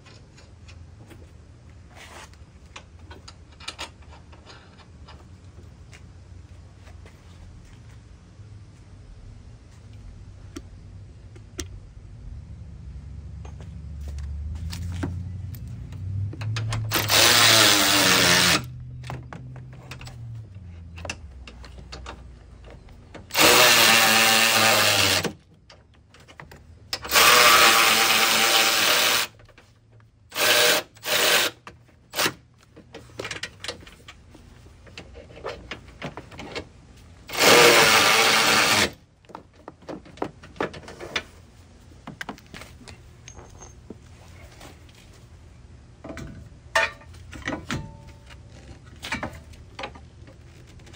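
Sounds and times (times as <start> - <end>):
cordless ratchet running: 16.9 - 18.7, 23.3 - 25.2, 37.3 - 38.9.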